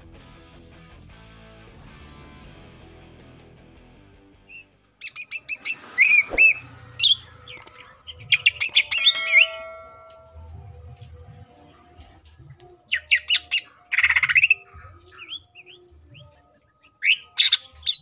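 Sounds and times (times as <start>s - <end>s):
songbird chirping and whistling: 4.4s - 10.3s, 12.8s - 18.0s.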